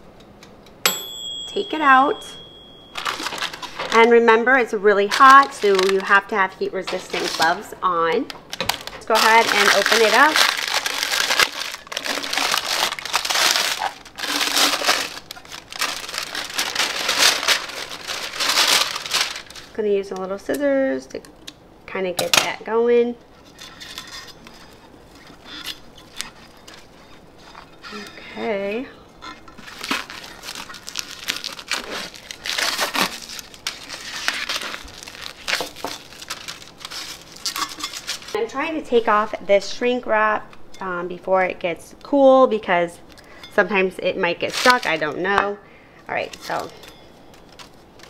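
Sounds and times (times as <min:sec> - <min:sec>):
parchment paper crinkling: 0:02.9 - 0:04.3, 0:04.9 - 0:07.8, 0:08.5 - 0:19.8, 0:23.4 - 0:28.1, 0:29.4 - 0:38.4, 0:44.4 - 0:45.1.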